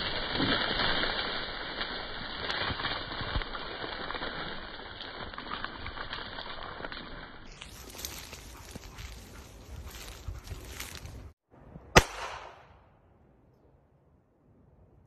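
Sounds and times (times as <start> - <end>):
dogs rushing through dry bracken: 0.0 - 11.4.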